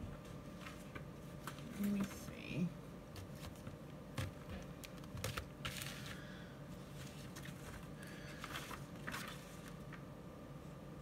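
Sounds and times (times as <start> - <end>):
paper rustle: 0.4 - 2.2, 3.2 - 10.1.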